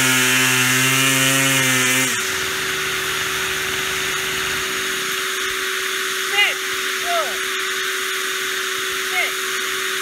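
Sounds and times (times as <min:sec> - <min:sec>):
shop vacuum whining: 0:00.0 - 0:10.0
string trimmer engine revving: 0:00.0 - 0:10.0.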